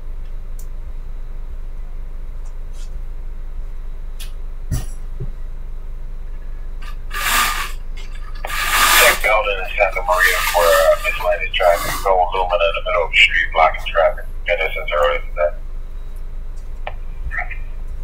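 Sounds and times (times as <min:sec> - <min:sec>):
radio scanner hum: 0:06.3 - 0:18.0
static bursts: 0:06.8 - 0:15.6.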